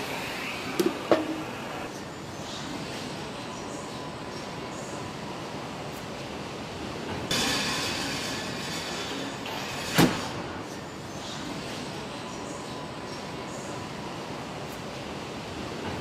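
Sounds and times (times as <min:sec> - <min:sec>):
hiss: 0:07.3 - 0:10.6.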